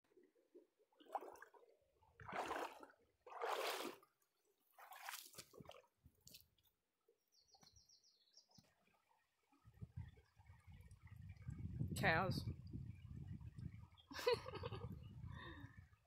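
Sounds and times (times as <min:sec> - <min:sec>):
sloshing footsteps in water: 0:00.9 - 0:06.7.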